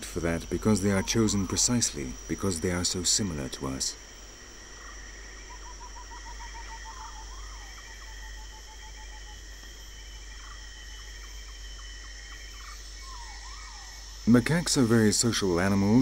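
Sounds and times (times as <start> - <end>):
insects droning shrilly: 0.0 - 16.0
bird piping notes: 0.4 - 4.0, 4.8 - 9.4.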